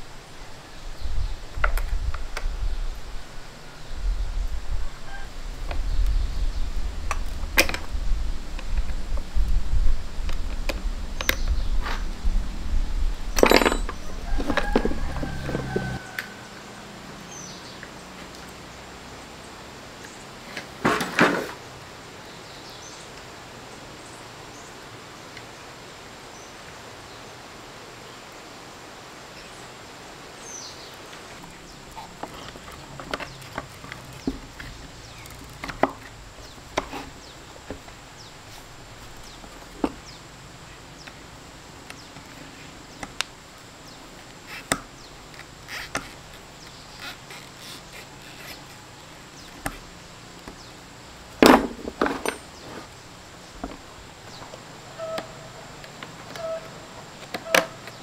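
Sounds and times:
tools and parts clicking: 0:13.4 - 0:16.0, 0:51.4 - 0:52.8.

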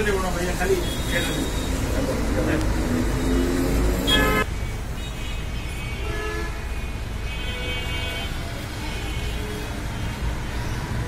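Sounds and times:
street traffic rumbling: 0:00.0 - 0:11.0
vehicle horn toots: 0:03.2 - 0:04.5.

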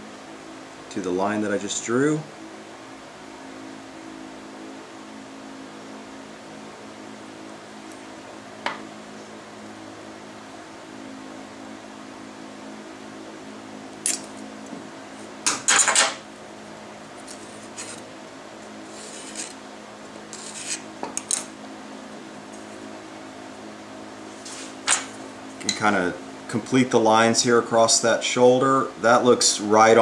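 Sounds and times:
steady low hum: 0:00.0 - 0:30.0
pencil scratching on wood: 0:20.4 - 0:20.8.

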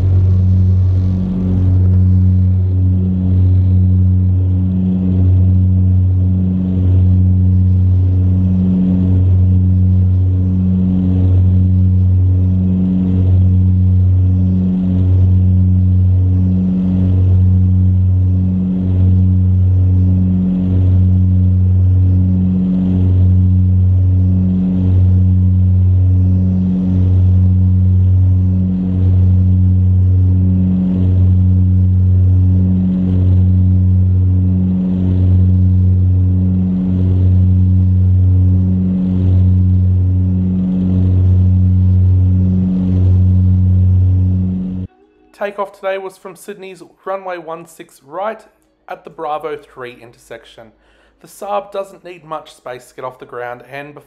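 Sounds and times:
turboprop engines droning: 0:00.0 - 0:54.0.

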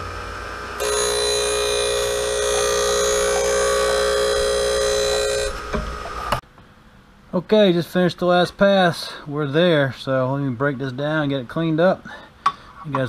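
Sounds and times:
grinding wheel whine on steel: 0:00.0 - 0:06.4.

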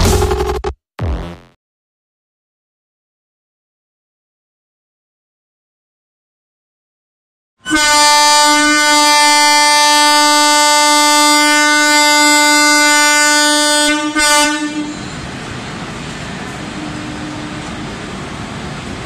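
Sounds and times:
locomotive air horn blasts: 0:07.6 - 0:15.1.

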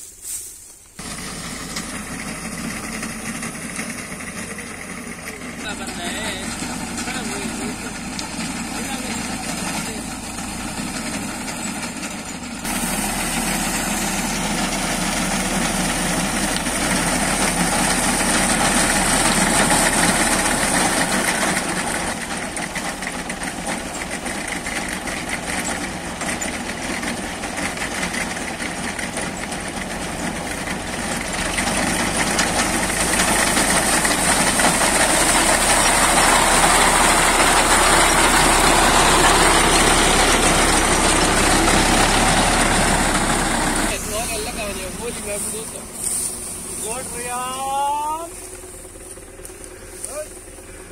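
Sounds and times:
tractor diesel engine under load: 0:00.9 - 0:50.9.

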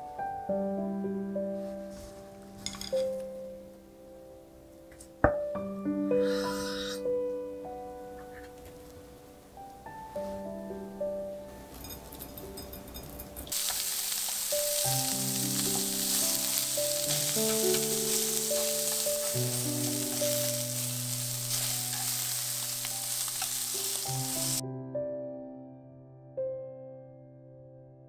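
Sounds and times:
soft piano music: 0:00.0 - 0:28.0
meat and garlic sizzling in a pan: 0:13.5 - 0:24.6.

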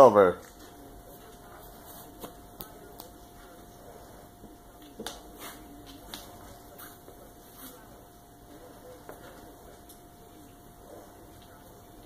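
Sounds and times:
faint steady hum: 0:00.0 - 0:12.0
faint clicks and taps: 0:04.8 - 0:06.6.

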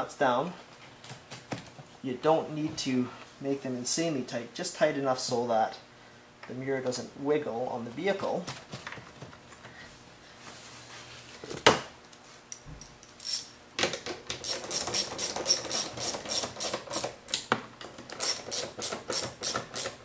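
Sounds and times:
hand ratchet clicking: 0:14.4 - 0:17.1, 0:18.1 - 0:20.0.

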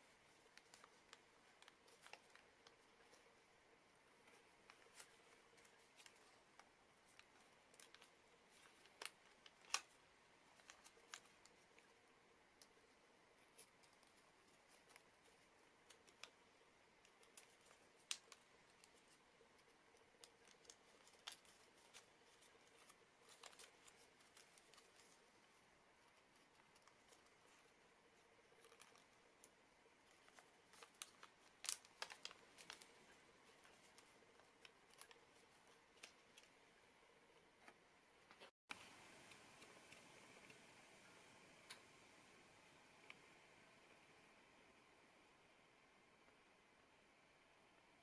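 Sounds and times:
paper crinkling and snapping: 0:00.0 - 0:36.8.

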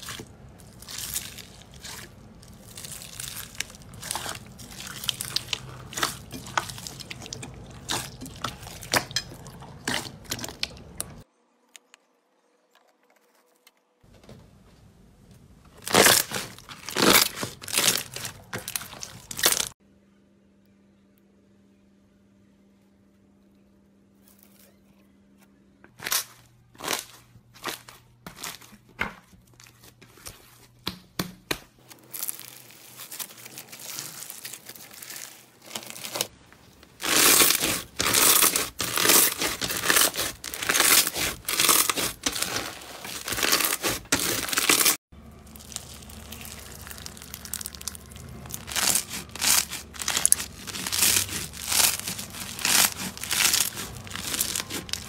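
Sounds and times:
slime crackling and crunching: 0:00.0 - 0:11.3, 0:15.8 - 0:19.8, 0:26.0 - 0:28.8, 0:31.8 - 0:55.0.

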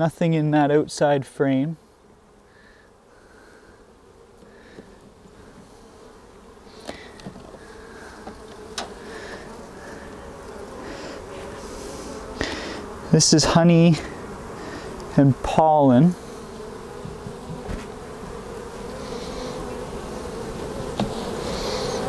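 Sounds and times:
bees buzzing: 0:00.0 - 0:22.0
hive tool clicks on wood: 0:21.0 - 0:21.2.

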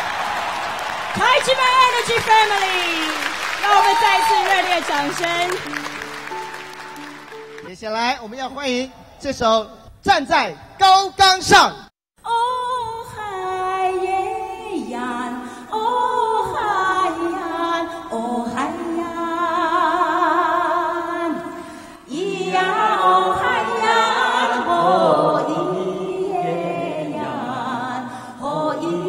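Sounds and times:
voices singing slow melody: 0:12.3 - 0:29.0.

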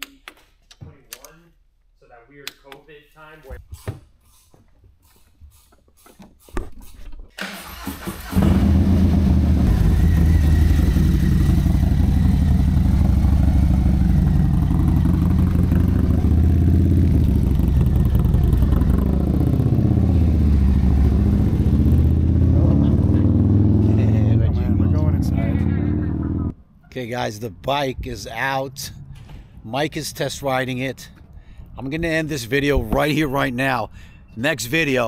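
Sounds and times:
motorcycle engine starting and revving: 0:07.4 - 0:26.5.

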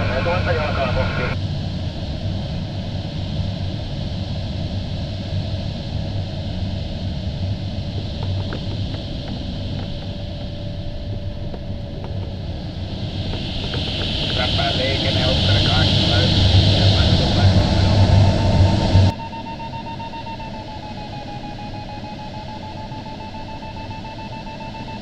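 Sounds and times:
rush of airflow: 0:00.0 - 0:19.1
low rumble: 0:00.0 - 0:21.5.

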